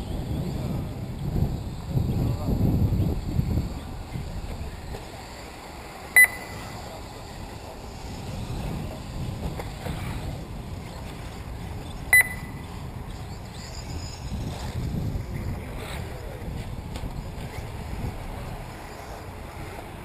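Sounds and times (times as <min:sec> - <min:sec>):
low wind noise: 0:00.0 - 0:20.0
short electronic beeps: 0:06.2 - 0:06.8, 0:12.1 - 0:12.7.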